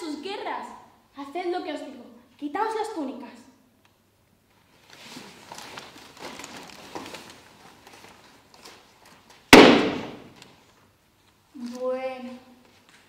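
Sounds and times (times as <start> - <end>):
robes rustling and shuffling: 4.3 - 13.0.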